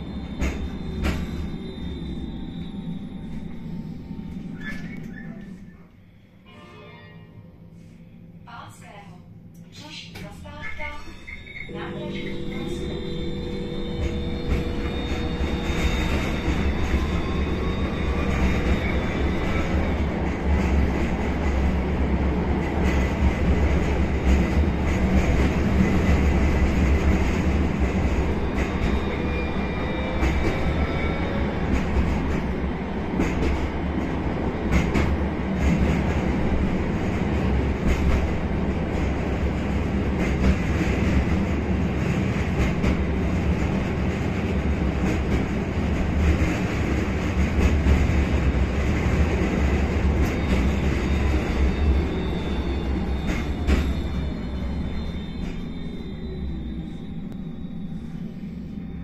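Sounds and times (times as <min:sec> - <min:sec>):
high wheel squeal: 0:00.0 - 0:05.9, 0:10.7 - 0:20.4, 0:27.0 - 0:32.6, 0:49.5 - 0:59.0
tram wheels rumbling on rails: 0:00.0 - 0:06.2, 0:07.4 - 0:59.0.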